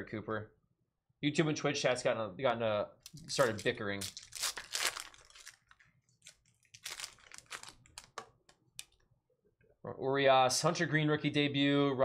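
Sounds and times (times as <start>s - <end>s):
foil wrapper crinkling: 3.1s - 8.3s.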